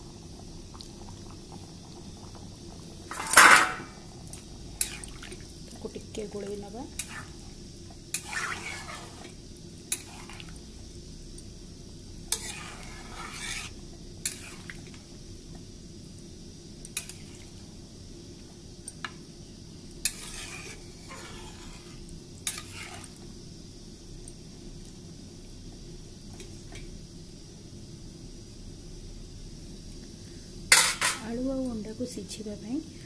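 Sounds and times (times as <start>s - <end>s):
spatula scraping through gravy: 4.8s - 5.4s, 6.9s - 10.6s, 12.3s - 14.9s, 20.0s - 23.2s.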